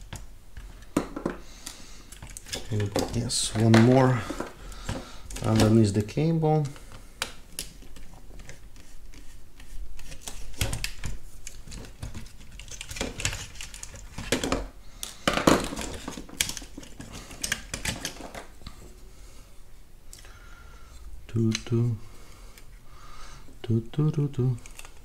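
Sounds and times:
plastic parts clicking and scraping: 0:00.0 - 0:18.8, 0:24.6 - 0:25.0.

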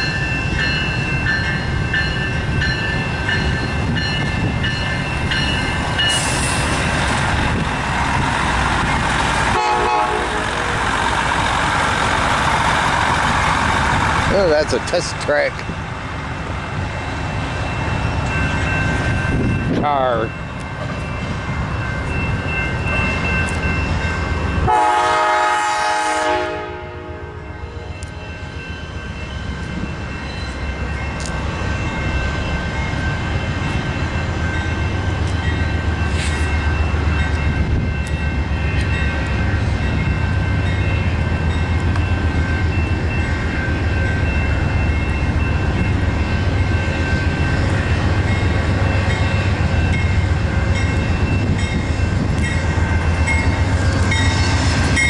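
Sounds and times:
train rumbling on the line: 0:00.0 - 0:55.0
train horn: 0:09.5 - 0:10.8, 0:24.7 - 0:27.9.

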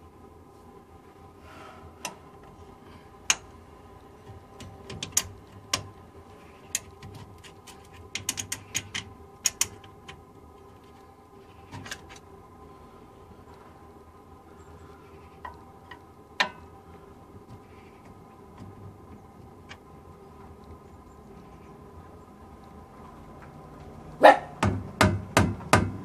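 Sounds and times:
hand tools clicking on metal: 0:04.6 - 0:05.9, 0:06.7 - 0:10.2.

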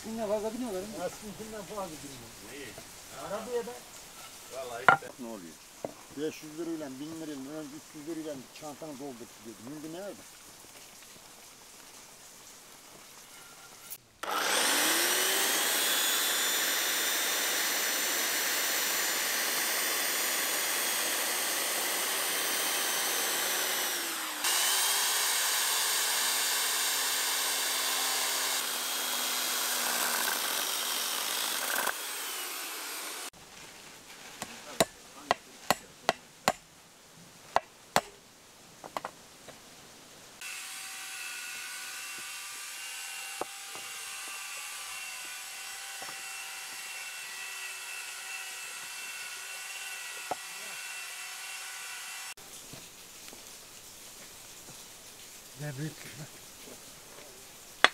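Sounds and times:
power saw cutting wood: 0:13.9 - 0:33.3, 0:40.4 - 0:52.4.

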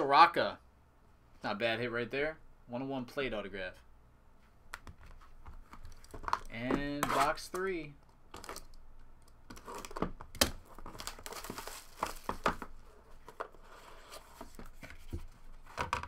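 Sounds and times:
shrink wrap tearing and crinkling: 0:09.5 - 0:12.7
cardboard box handled and opened: 0:10.7 - 0:15.8.

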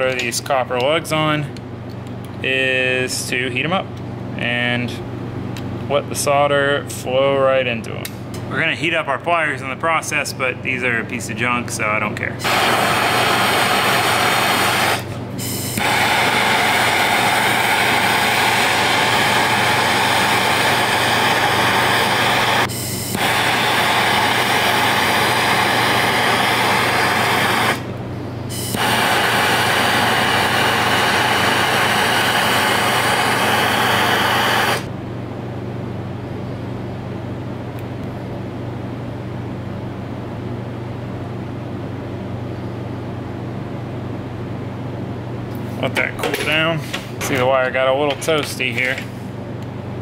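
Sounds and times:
gas torch hissing: 0:12.4 - 0:34.9.

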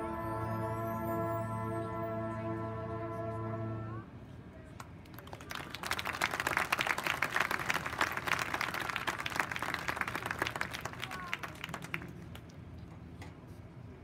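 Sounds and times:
crowd applauding: 0:05.1 - 0:12.5.

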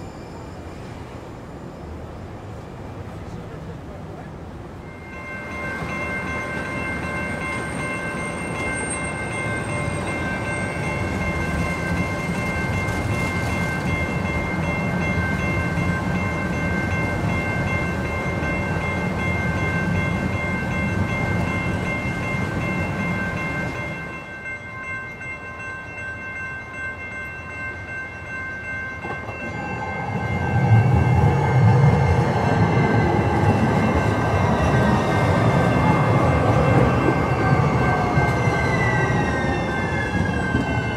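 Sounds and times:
train wheels rumbling on rails: 0:00.0 - 0:40.9.

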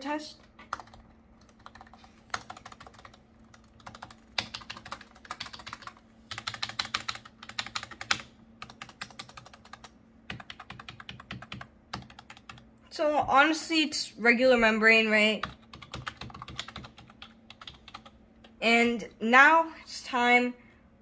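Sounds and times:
keyboard keys pressed: 0:15.4 - 0:18.1.

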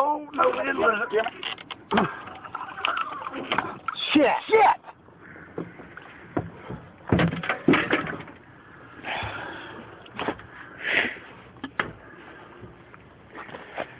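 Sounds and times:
sharp knocks and bangs: 0:05.6 - 0:08.3.

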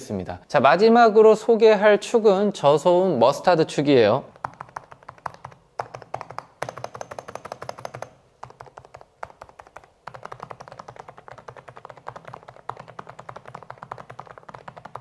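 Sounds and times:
muted keyboard keystrokes: 0:04.4 - 0:15.0.

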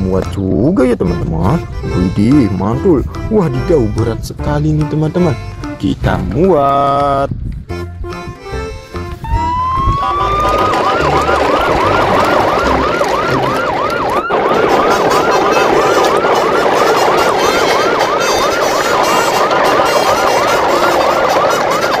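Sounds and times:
siren yelping: 0:09.2 - 0:22.0.

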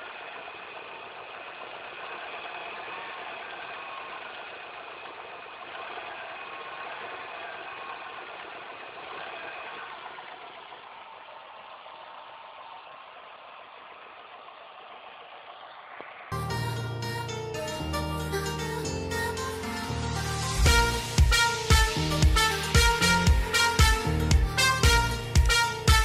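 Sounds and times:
car engine idling: 0:00.0 - 0:26.0
high whine: 0:16.3 - 0:26.0.

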